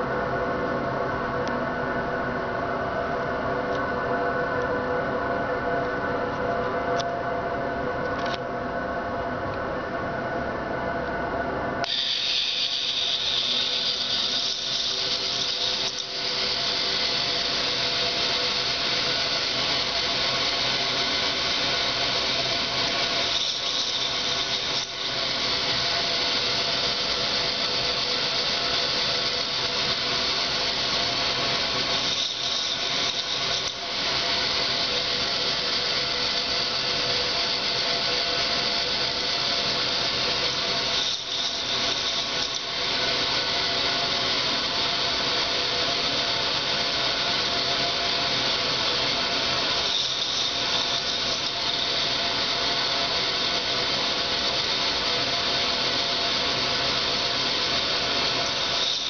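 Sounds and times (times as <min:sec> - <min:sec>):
toy motor whirring and grinding: 0:11.8 - 0:59.0.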